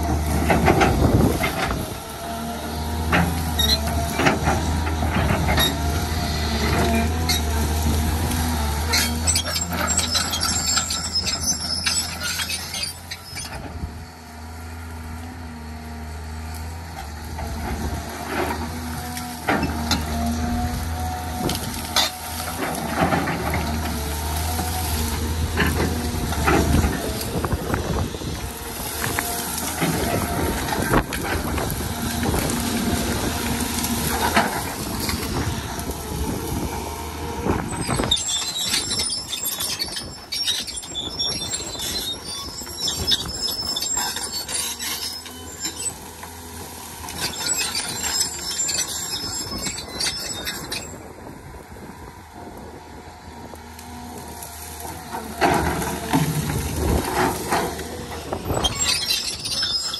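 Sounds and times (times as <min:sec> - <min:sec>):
excavator diesel engine: 0:00.0 - 0:59.9
scratchy crackling and squealing: 0:37.6 - 0:46.0, 0:47.2 - 0:50.9, 0:56.9 - 0:59.9.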